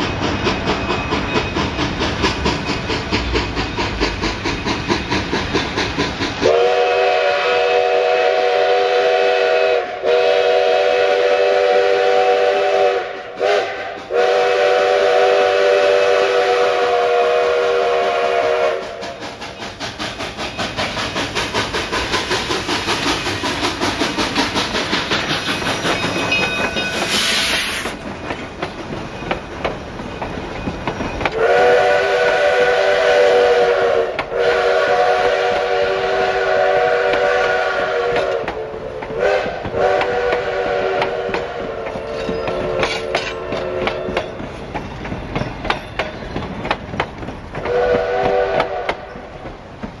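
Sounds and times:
coaches clattering on rails: 0.0s - 6.6s, 18.7s - 31.6s, 38.1s - 50.0s
steam hiss: 0.0s - 50.0s
steam locomotive chuffing: 0.0s - 50.0s
train chime whistle: 6.4s - 19.0s, 25.9s - 27.9s, 31.2s - 44.4s.

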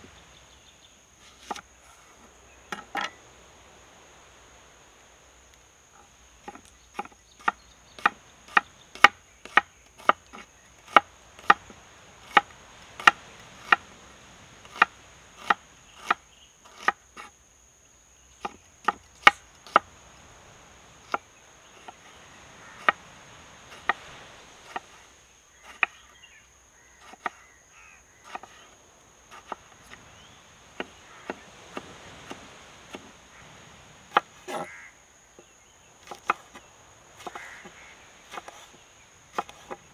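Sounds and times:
knife slicing onion on wooden board: 28.2s - 28.6s, 37.2s - 38.7s, 39.3s - 39.8s.

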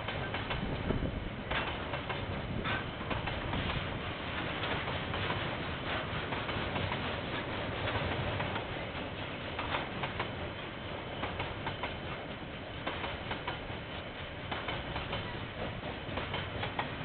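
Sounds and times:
steel wheels rumbling on rail: 0.0s - 17.0s.

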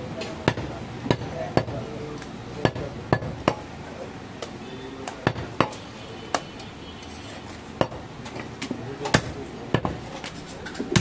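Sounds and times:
cleaver chopping meat on wood: 0.4s - 1.8s, 2.6s - 3.6s, 4.4s - 6.5s, 7.8s - 8.0s, 9.0s - 10.0s.

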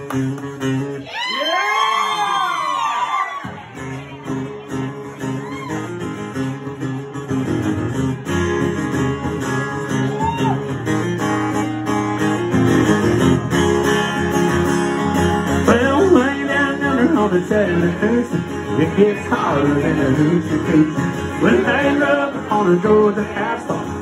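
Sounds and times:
acoustic guitar strumming: 0.0s - 1.0s, 3.4s - 24.0s
person singing: 15.6s - 24.0s.

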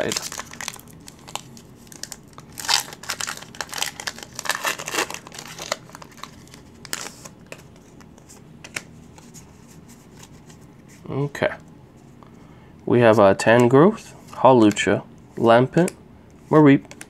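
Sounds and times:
foil wrapper tearing and crinkling: 0.0s - 7.3s.

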